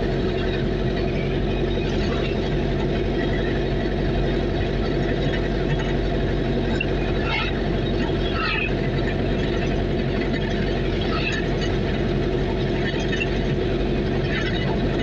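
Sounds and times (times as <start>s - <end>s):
road noise: 0.0s - 15.0s
vehicle engine droning: 0.0s - 15.0s.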